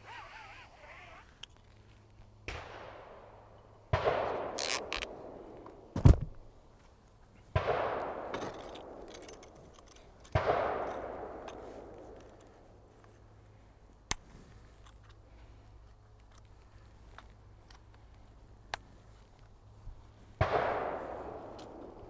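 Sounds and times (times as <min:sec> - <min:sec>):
echoing gunshots: 0:02.5 - 0:06.0, 0:07.5 - 0:09.5, 0:10.3 - 0:12.2, 0:20.4 - 0:22.0
sharp thump: 0:06.0 - 0:06.4.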